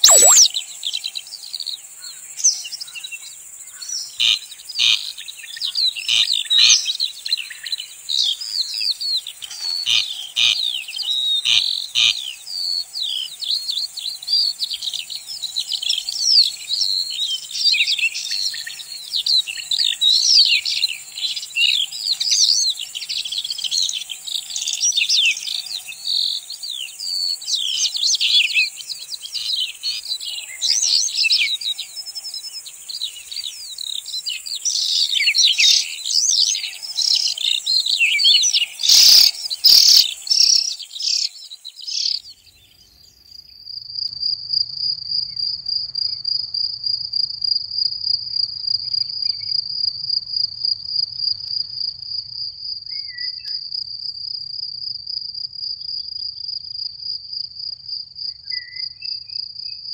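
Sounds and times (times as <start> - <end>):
insect pulsing trill: 0.0 - 0.6, 17.6 - 42.3
songbirds chorus: 0.0 - 43.5.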